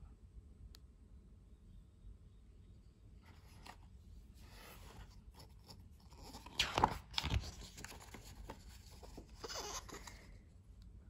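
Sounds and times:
paper rustling: 3.3s - 10.3s
page turning swish and flap: 5.7s - 9.3s.

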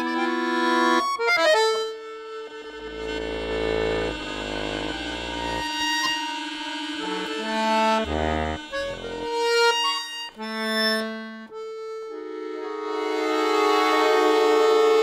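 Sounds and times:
accordion playing notes and chords: 0.0s - 15.0s.

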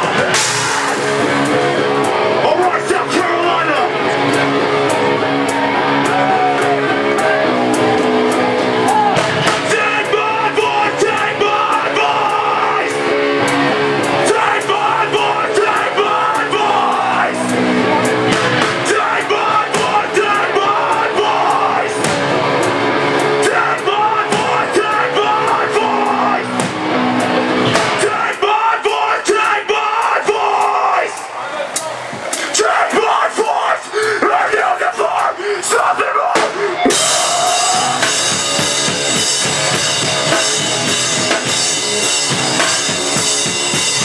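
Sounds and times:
electric guitars: 0.0s - 28.9s, 36.3s - 44.0s
drum kit: 0.0s - 30.1s, 36.3s - 44.0s
vocalist shouting and singing: 2.4s - 4.2s, 8.8s - 13.1s, 14.1s - 22.1s, 23.2s - 26.6s, 27.8s - 39.3s.

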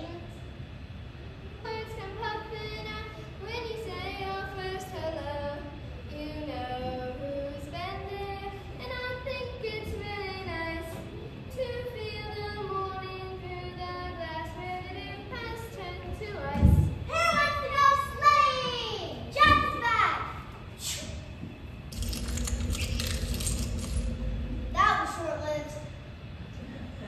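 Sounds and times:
child singing slow song: 1.6s - 19.1s.

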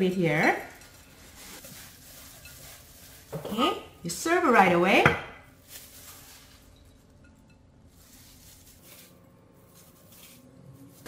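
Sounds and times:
salad being tipped and spread: 7.9s - 11.0s.

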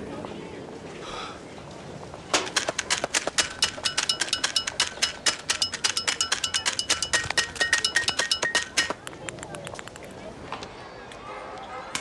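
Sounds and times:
fast metallic clinking taps: 2.6s - 9.2s.

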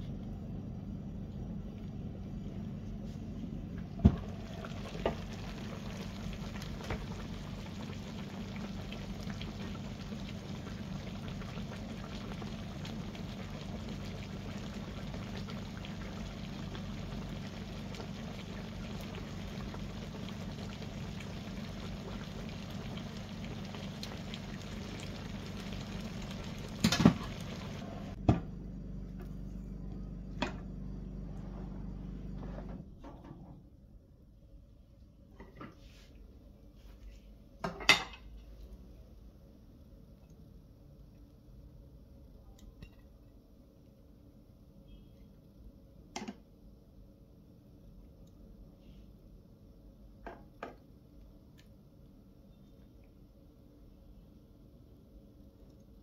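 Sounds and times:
low hum: 0.0s - 33.0s
food bubbling in a pan: 0.9s - 28.3s.

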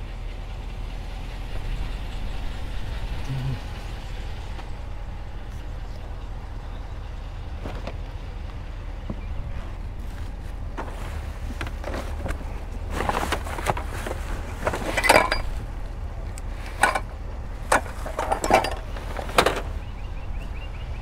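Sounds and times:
steady low rumble: 0.0s - 21.0s
cardboard and plastic bags rustling: 9.5s - 17.0s
hard plastic clinks and knocks: 11.6s - 15.6s, 16.4s - 19.7s.

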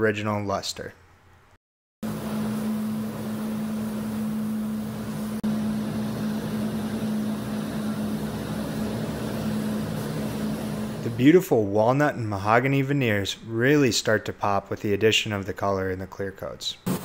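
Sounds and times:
low machine hum: 2.0s - 11.2s.

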